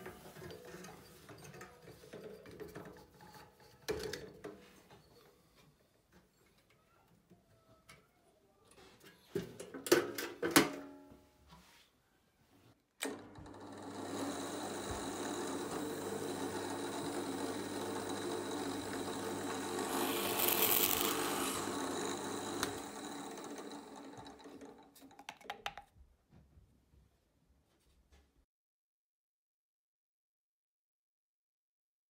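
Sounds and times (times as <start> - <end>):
drill press motor humming: 13.4 - 24.8
drill bit cutting into wood: 14.0 - 24.3.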